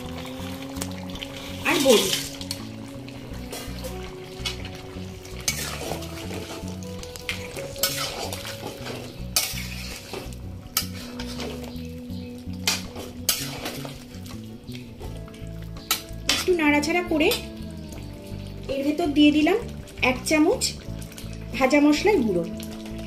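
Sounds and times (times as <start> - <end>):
spatula scraping metal pan: 5.4 - 6.7, 7.4 - 11.7, 12.6 - 14.0.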